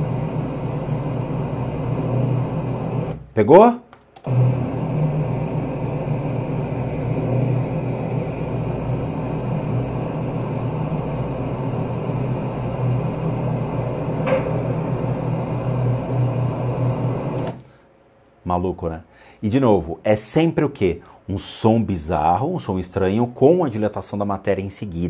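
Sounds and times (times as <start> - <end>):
low hum and hiss: 5.3 - 25.0
short sharp sound: 14.2 - 15.0.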